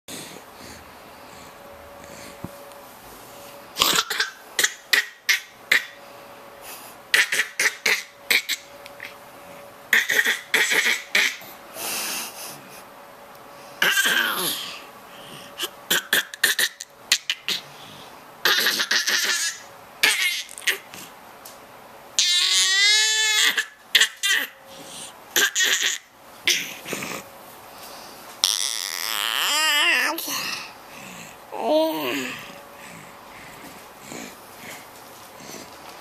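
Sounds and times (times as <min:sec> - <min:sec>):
baby laughing: 0:18.4 - 0:20.9, 0:25.4 - 0:26.7.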